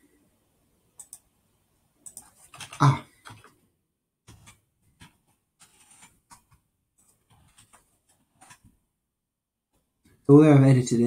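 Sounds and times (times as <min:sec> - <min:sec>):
mouse and keyboard clicks: 0:01.0 - 0:01.3, 0:02.0 - 0:03.6.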